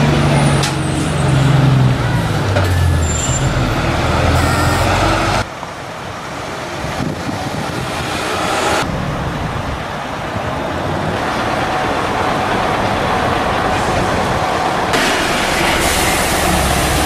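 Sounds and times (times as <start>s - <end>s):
bus diesel engine pulling away: 0.0s - 5.4s, 10.8s - 17.0s
quieter bus diesel engine: 0.0s - 17.0s.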